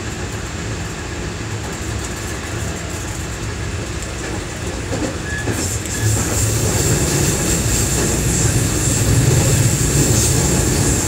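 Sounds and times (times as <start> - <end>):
train wheels and traction rumble: 0.0 - 11.0
high hiss: 5.6 - 11.0.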